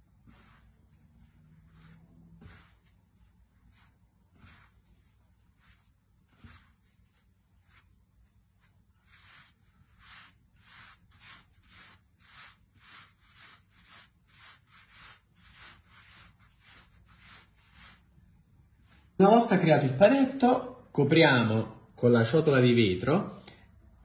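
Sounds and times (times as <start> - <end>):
hands rubbing dough: 0.0 - 19.2.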